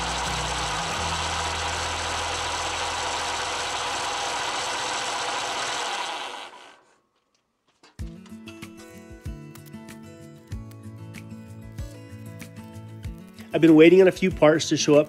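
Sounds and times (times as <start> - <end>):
tractor engine running: 0.0 - 6.9.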